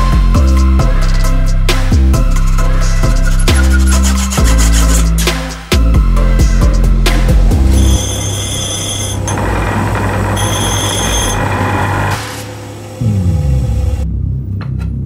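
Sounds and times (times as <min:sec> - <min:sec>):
screw grinding on wheel: 0:03.2 - 0:05.2, 0:07.7 - 0:12.2
bench grinder humming: 0:07.6 - 0:14.0.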